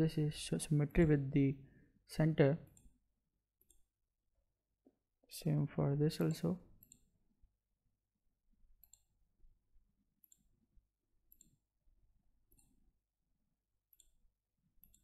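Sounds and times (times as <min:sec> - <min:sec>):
computer mouse clicks: 0:06.8 - 0:07.1, 0:08.8 - 0:09.2, 0:10.2 - 0:10.5, 0:11.3 - 0:11.7, 0:12.5 - 0:12.8, 0:13.9 - 0:14.2, 0:14.8 - 0:15.0.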